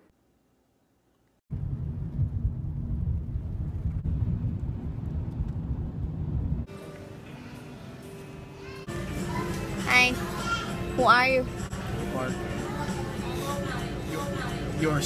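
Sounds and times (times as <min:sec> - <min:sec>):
car cabin road rumble: 0:01.5 - 0:06.7.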